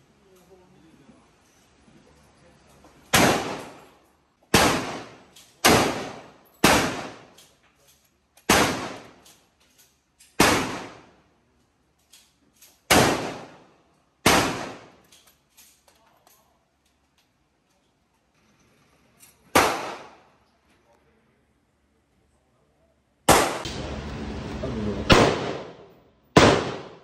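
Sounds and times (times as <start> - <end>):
gunshots echoing indoors: 3.0 - 3.9, 4.5 - 7.4, 8.4 - 9.3, 10.4 - 11.2, 12.9 - 15.1, 19.5 - 20.3, 23.2 - 24.4, 25.0 - 27.0.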